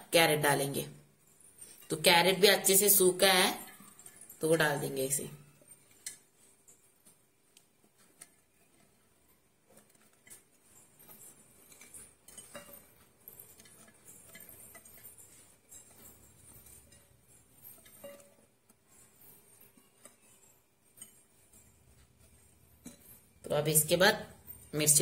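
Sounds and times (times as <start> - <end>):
carrot sticks dropped into glass jar: 11.2 - 17.1.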